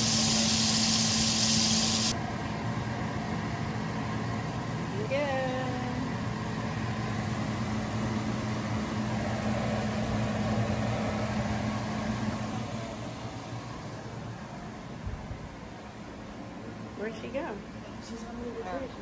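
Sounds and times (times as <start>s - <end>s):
food sizzling in hot oil: 0.0s - 2.2s.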